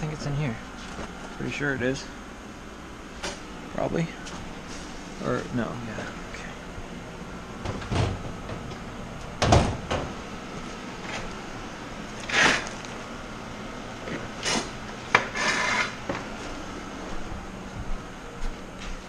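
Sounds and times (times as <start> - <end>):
wooden boards and metal clunking: 9.4 - 10.2.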